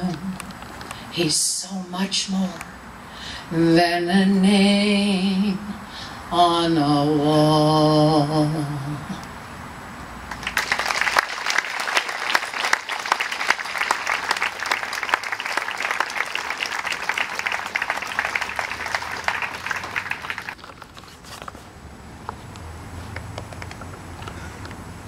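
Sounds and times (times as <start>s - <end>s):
audience applauding: 10.3s - 20.6s.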